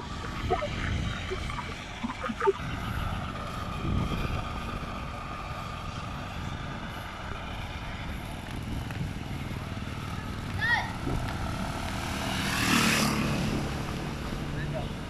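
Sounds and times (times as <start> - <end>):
wind noise on microphone: 0.0 - 9.7, 10.9 - 11.6
bike tyres on asphalt: 0.0 - 15.0.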